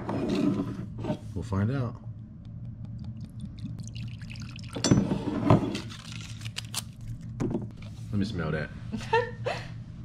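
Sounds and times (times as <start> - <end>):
liquid pouring into a mug: 2.9 - 5.0.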